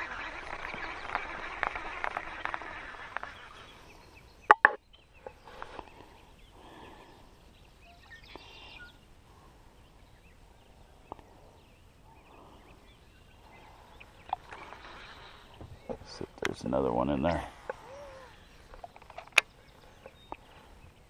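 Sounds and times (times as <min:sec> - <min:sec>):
faint short calls: 0:17.3 - 0:18.5.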